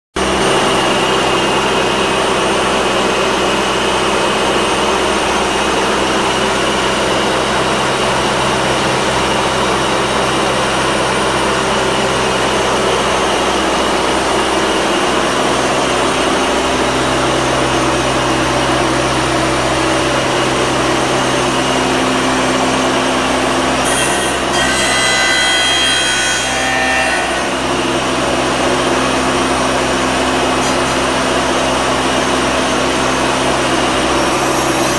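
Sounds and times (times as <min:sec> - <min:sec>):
machine drone with hum: 0:00.2 - 0:34.9
metal grinding screech: 0:23.8 - 0:27.7.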